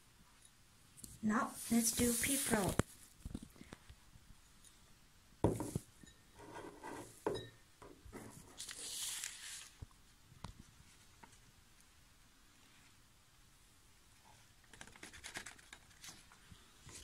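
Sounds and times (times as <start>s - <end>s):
glass set down on table: 5.4s - 5.8s
paper rustling and crinkling: 8.2s - 9.9s, 14.6s - 17.0s.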